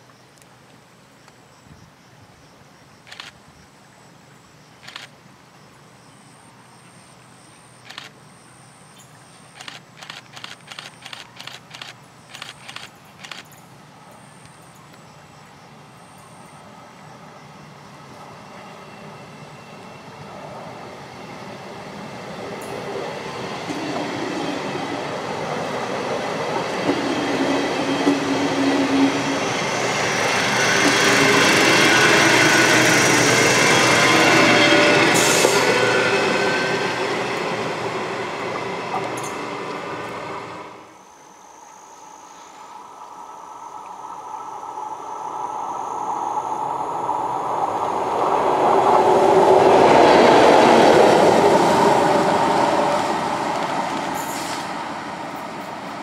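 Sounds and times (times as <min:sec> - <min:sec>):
electric train passing: 0:09.5 - 0:56.0
rail rumble: 0:43.8 - 0:56.0.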